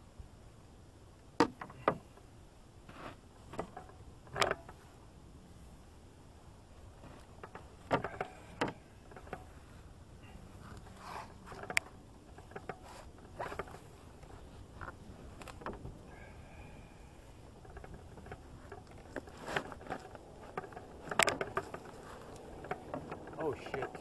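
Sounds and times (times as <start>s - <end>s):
knocks inside metal canoe: 17.6s - 24.0s.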